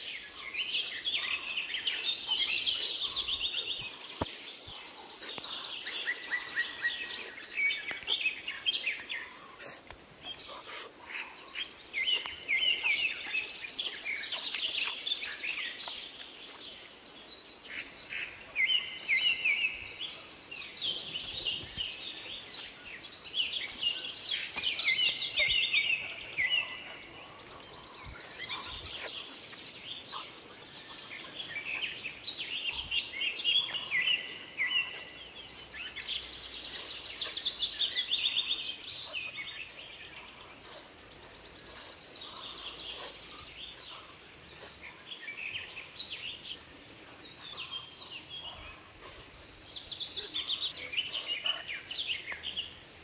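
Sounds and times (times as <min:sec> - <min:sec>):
songbirds chirping and singing: 0:00.0 - 0:53.0.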